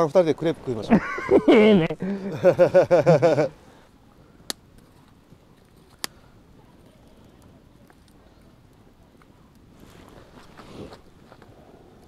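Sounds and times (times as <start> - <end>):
campfire popping: 3.4 - 12.0.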